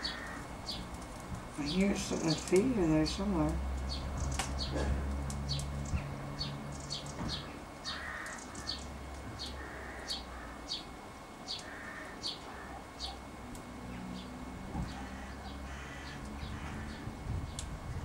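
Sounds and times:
harsh lower bird calls: 0:00.0 - 0:00.9, 0:03.9 - 0:13.3, 0:13.9 - 0:17.2
sparrows cheeping: 0:00.0 - 0:18.0.

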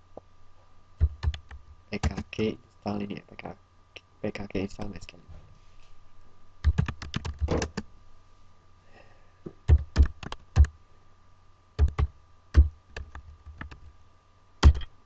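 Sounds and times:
keyboard typing: 0:01.0 - 0:02.3, 0:06.6 - 0:07.8, 0:09.7 - 0:10.7, 0:11.8 - 0:13.9.

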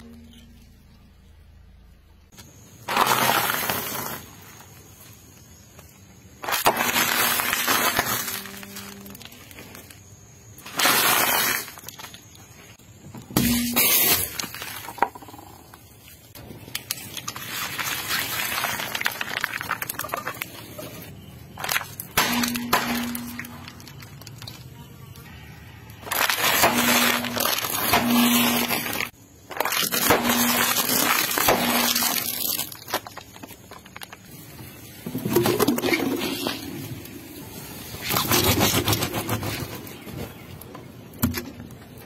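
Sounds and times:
tyre crushing plastic packets: 0:02.5 - 0:05.4, 0:06.1 - 0:12.7, 0:16.4 - 0:25.3, 0:25.9 - 0:37.0.

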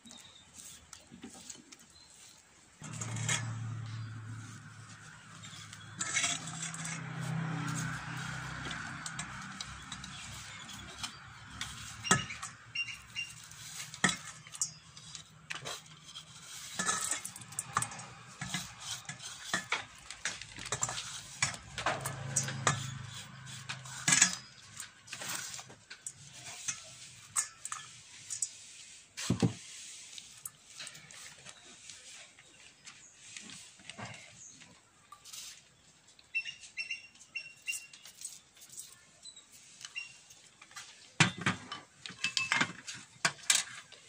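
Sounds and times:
food scraped by hand: 0:00.1 - 0:34.5
bowls clinking and knocking: 0:02.8 - 0:28.5.

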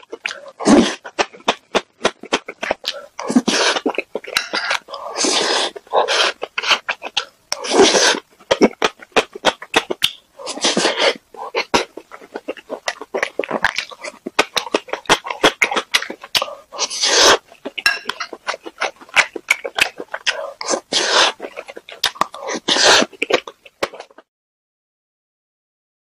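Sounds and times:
slurping and mouth breathing: 0:00.0 - 0:24.2
wet chewing and lip smacking: 0:00.0 - 0:24.2.

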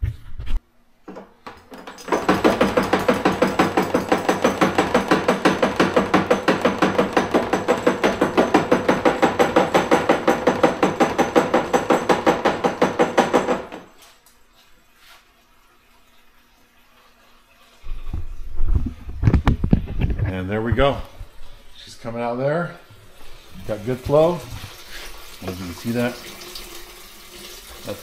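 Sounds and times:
siphon knocking and rattling: 0:01.1 - 0:13.8.

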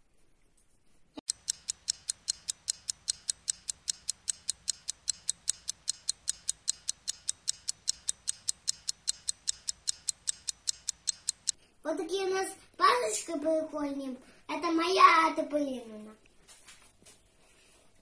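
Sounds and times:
stopwatch ticking: 0:01.3 - 0:11.6.

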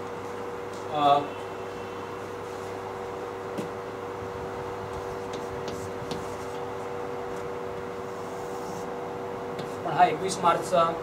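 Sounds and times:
steady room hum: 0:00.0 - 0:11.0
chalk tapping on blackboard: 0:04.9 - 0:06.7.

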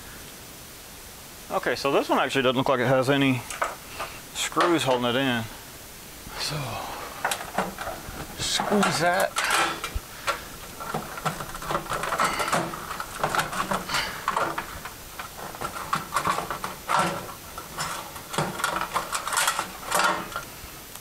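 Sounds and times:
sheet metal scraping and rattling: 0:03.4 - 0:05.4, 0:06.4 - 0:20.6.

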